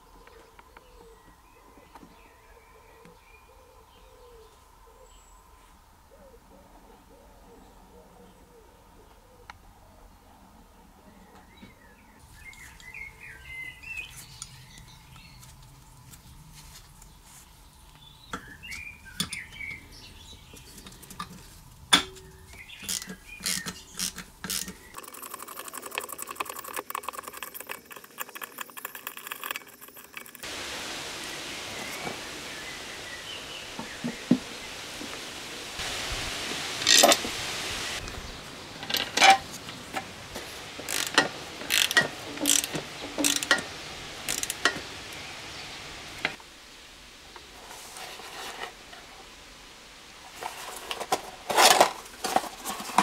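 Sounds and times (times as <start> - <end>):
outdoor hiss: 11.4 - 25.1, 30.0 - 53.0
engine parts squeaking: 20.7 - 30.4, 38.8 - 46.3
ratchet clicking: 22.9 - 30.4, 40.8 - 43.6, 44.3 - 44.8
sharp metal clicks: 40.8 - 43.7, 44.3 - 44.8.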